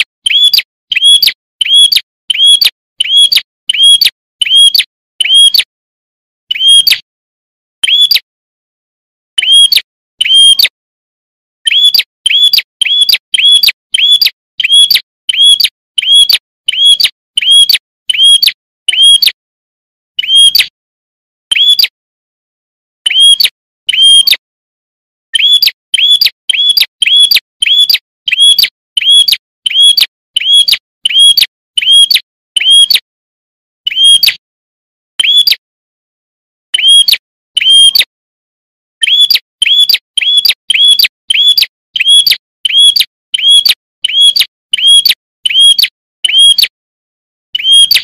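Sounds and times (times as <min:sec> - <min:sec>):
bird chirping: 0:00.0 - 0:05.6, 0:06.5 - 0:07.0, 0:07.8 - 0:08.3, 0:09.4 - 0:10.7, 0:11.6 - 0:19.3, 0:20.2 - 0:20.7, 0:21.5 - 0:21.9, 0:23.1 - 0:24.4, 0:25.3 - 0:33.0, 0:33.9 - 0:34.4, 0:35.2 - 0:35.6, 0:36.7 - 0:38.1, 0:39.0 - 0:46.6, 0:47.6 - 0:48.0.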